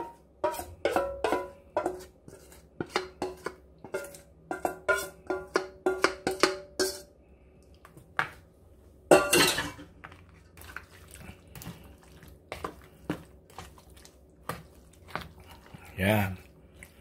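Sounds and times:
metal pot clinking: 0.0s - 2.0s, 2.9s - 7.1s, 9.1s - 9.9s
fork stirring batter in bowl: 0.0s - 7.1s, 10.0s - 17.0s.

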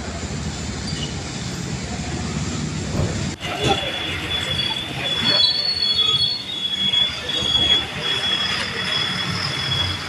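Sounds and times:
trucks and motorbikes rolling past: 0.0s - 10.0s
high squeal: 3.4s - 10.0s.

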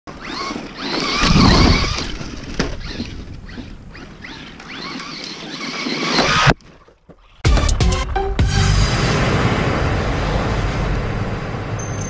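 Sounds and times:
rc truck motor whine: 0.1s - 6.5s
loud low rumble: 8.3s - 11.8s.

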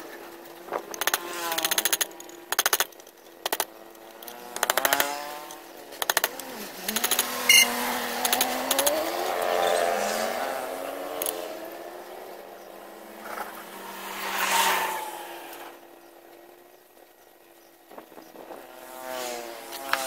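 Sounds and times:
engine humming: 0.0s - 20.0s
metal tool chipping resin: 1.0s - 3.7s.

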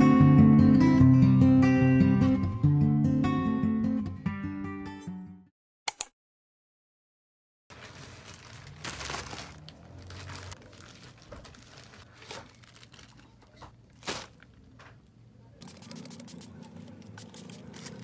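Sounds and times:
plastic mailer bags crinkling: 7.7s - 14.8s, 15.6s - 18.0s.

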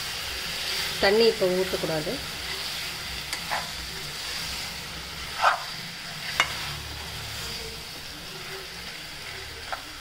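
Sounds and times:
chicken sizzling in oil: 0.0s - 10.0s
metal spatula scraping a pan: 2.3s - 9.8s.

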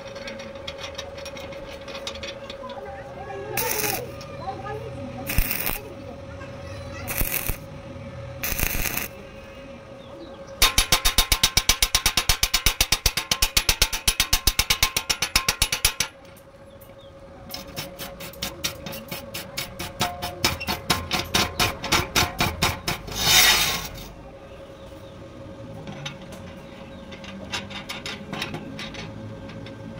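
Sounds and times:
wire brush scraping metal: 0.0s - 4.3s, 5.2s - 5.9s, 7.1s - 7.7s, 8.4s - 9.2s, 17.5s - 24.2s.

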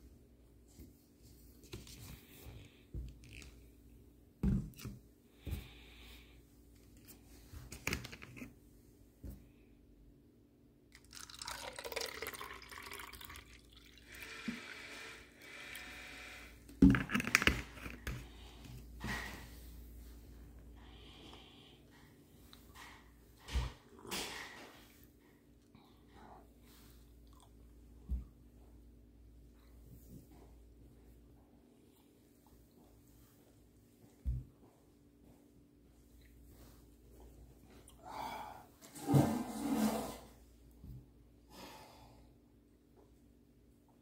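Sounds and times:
iced tea pouring into cup: 10.9s - 14.8s.

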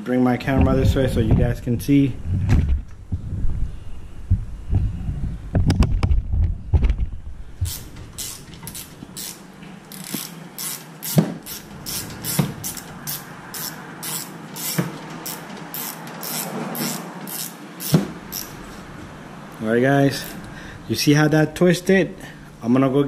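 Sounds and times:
ratchet pawl clicking: 7.7s - 18.6s.

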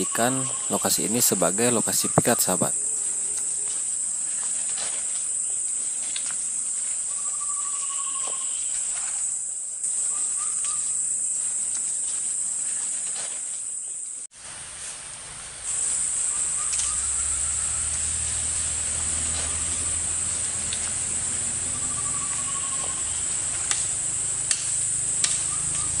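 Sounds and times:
insects droning: 0.0s - 26.0s
low bird trills: 7.1s - 8.9s, 21.7s - 23.3s.

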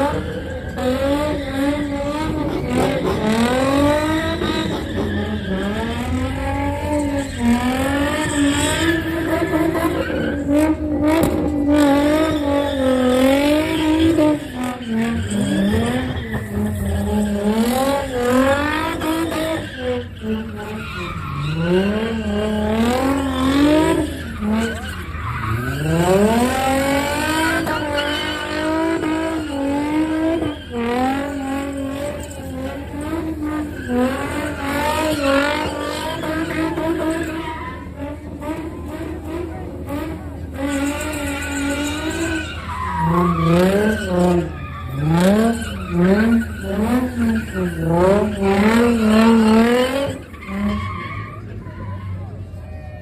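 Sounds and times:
car engine revving: 0.0s - 51.6s
tyres squealing: 12.0s - 38.9s.

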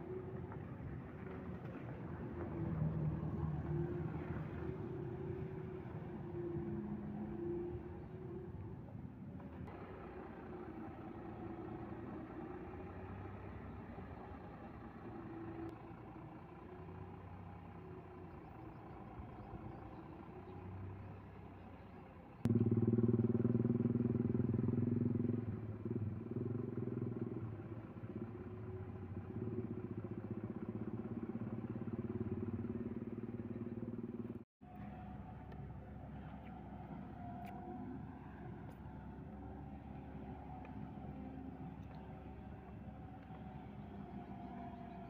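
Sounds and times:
diesel truck engine idling: 7.6s - 24.1s
louder engine running: 22.4s - 45.0s.

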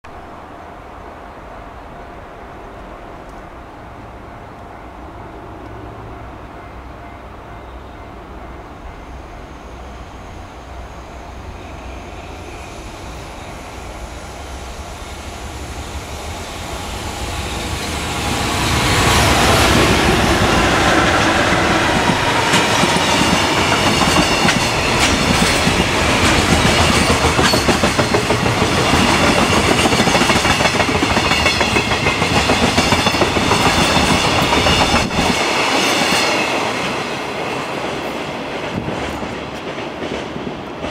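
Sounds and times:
electric locomotive approaching: 0.1s - 40.9s
wagons clickety-clack over rail joints: 21.9s - 36.5s.

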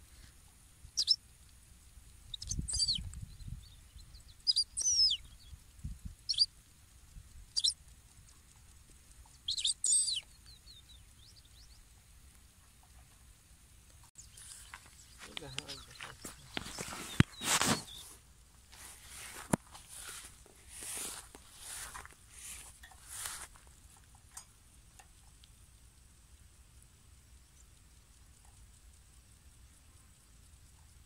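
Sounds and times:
goldfinch twittering chirps: 1.0s - 1.2s, 2.3s - 5.6s, 6.2s - 6.5s, 7.5s - 7.8s, 9.2s - 12.0s, 14.2s - 18.2s.

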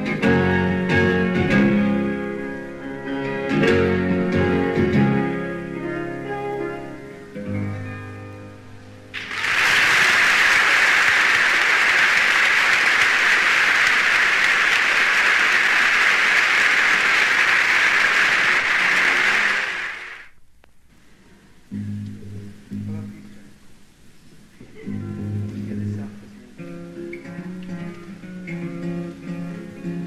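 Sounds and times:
audience applauding: 9.2s - 20.3s.

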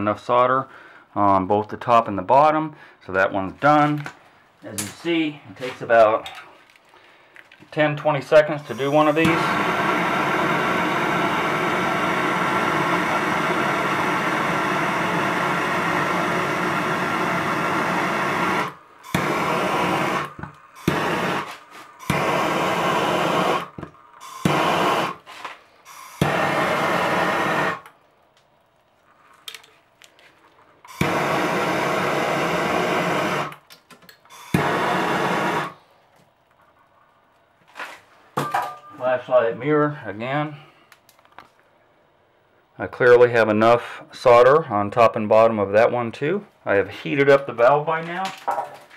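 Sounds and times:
torch flame hissing: 8.5s - 27.9s, 30.8s - 33.6s, 34.3s - 35.9s.

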